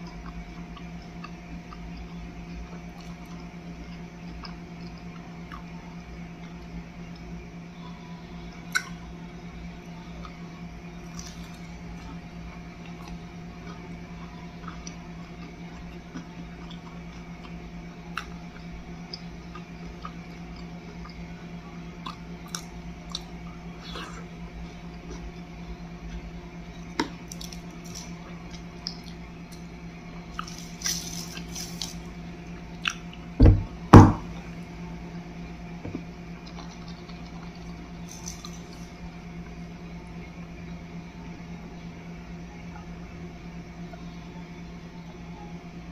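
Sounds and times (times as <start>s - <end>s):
close-up chewing: 0.0s - 7.4s, 9.9s - 33.4s, 36.0s - 39.6s.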